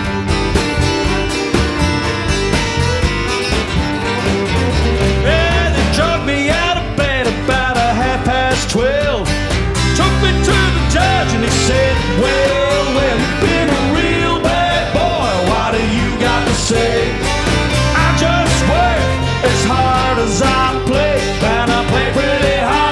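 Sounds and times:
wavering lead melody: 0.0s - 7.7s
bass guitar: 0.0s - 22.9s
drums: 0.0s - 22.9s
fiddle: 0.0s - 22.9s
strummed acoustic guitars: 0.0s - 22.9s.

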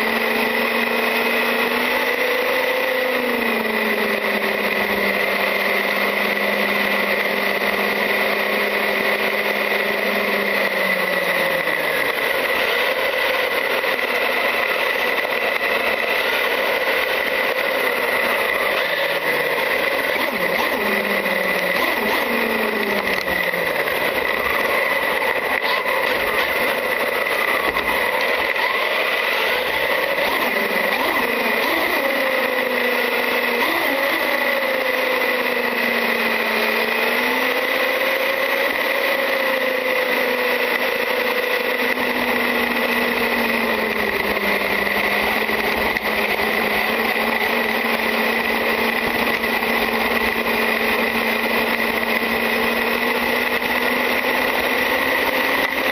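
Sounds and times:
electric motor whine: 0.0s - 55.9s.

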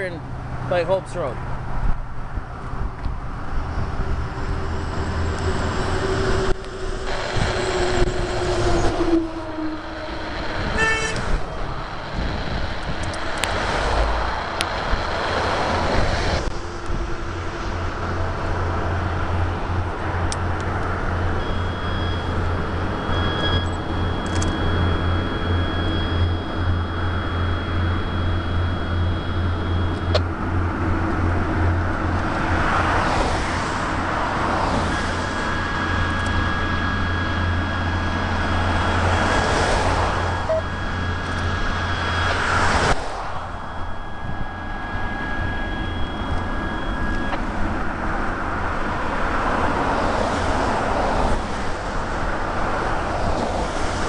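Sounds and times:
low engine hum: 0.0s - 54.0s
road traffic passing: 0.0s - 54.0s
horn toot: 4.9s - 12.3s.

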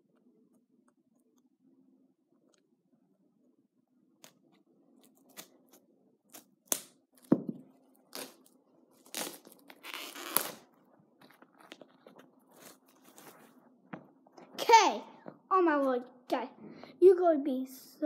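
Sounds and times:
packaging tearing and rustling: 8.1s - 10.7s.

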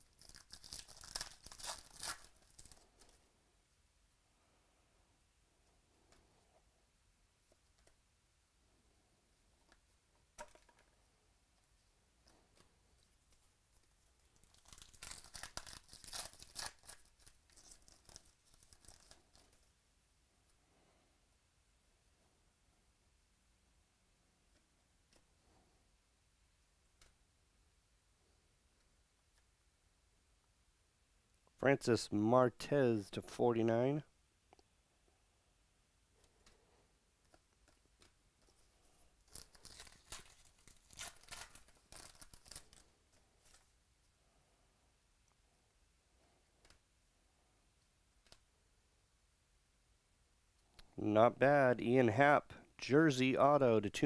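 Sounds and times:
foil wrapper tearing and crinkling: 0.0s - 3.1s, 14.2s - 19.6s, 39.2s - 43.6s.

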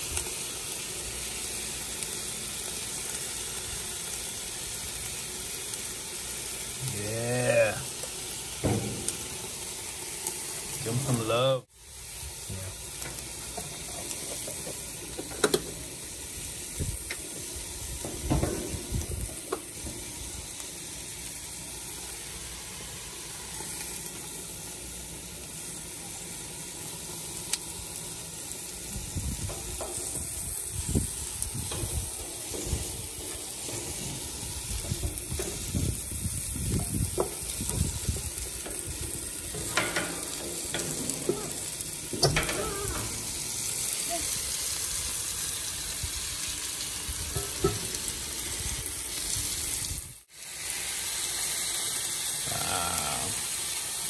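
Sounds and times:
vegetables sizzling on a griddle: 0.0s - 54.0s
spoon tapping griddle: 13.0s - 15.8s, 29.4s - 30.4s, 36.7s - 43.2s, 47.3s - 48.0s.

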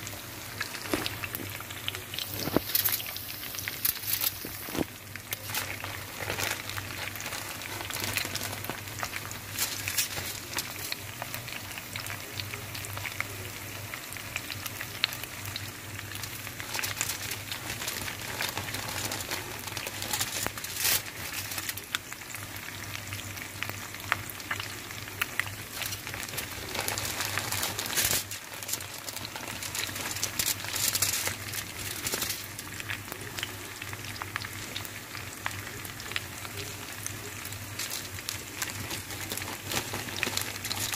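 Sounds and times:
low steady hum: 0.0s - 40.9s.

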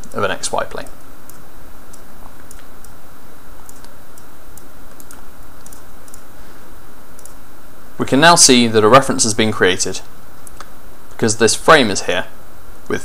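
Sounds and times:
steady background hiss: 0.0s - 13.0s
keyboard and mouse clicks: 1.3s - 3.0s, 3.6s - 6.2s.

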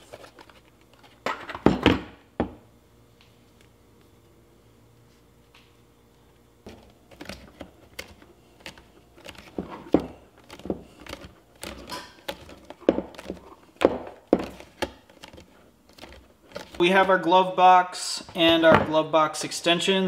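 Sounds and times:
plastic parts clicking and knocking: 6.7s - 16.8s.

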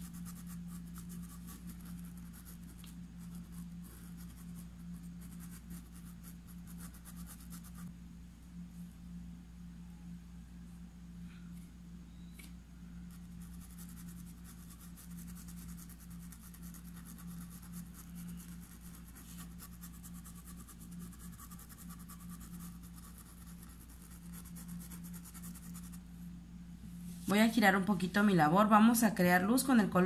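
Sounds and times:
paintbrush scratching on fabric: 0.0s - 7.9s, 13.1s - 26.0s
steady low hum: 0.0s - 30.0s.

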